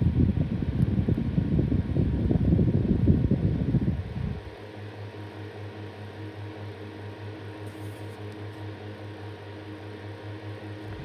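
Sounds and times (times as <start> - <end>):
air buffeting microphone: 0.0 - 4.5
fan motor hum: 0.0 - 11.0.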